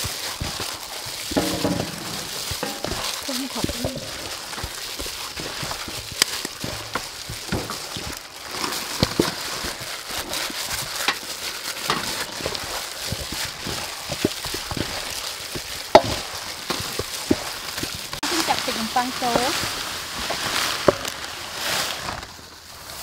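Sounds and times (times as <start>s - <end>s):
meat clicking against metal bowl: 0.0s - 18.2s
plastic crinkling: 0.0s - 23.0s
wet squelching of mixed meat: 0.0s - 23.0s.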